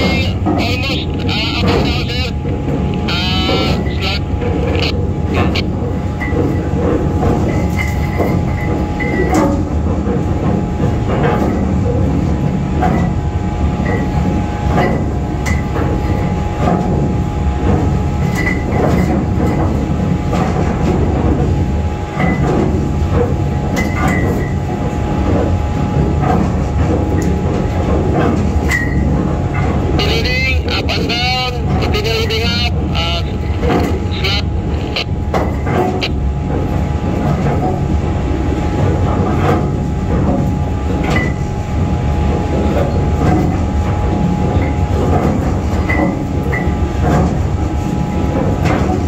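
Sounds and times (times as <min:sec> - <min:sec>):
mechanical rumble: 0:00.0 - 0:49.0.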